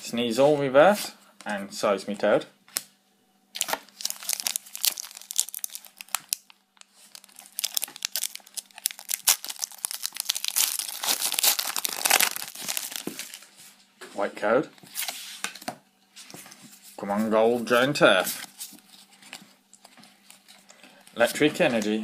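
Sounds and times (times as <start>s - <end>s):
foil wrapper crinkling and tearing: 3.6s - 13.5s.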